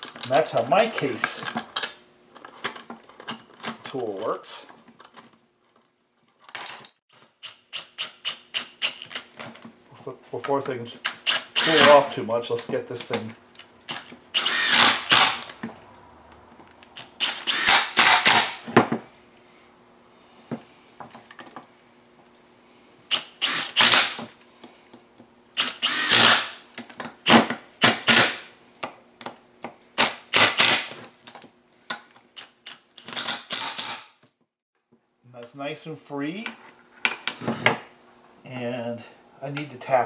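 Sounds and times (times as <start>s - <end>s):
cordless drill running in bursts: 11.2s - 12.1s, 14.3s - 15.5s, 17.2s - 18.6s, 23.1s - 24.2s, 25.6s - 26.6s.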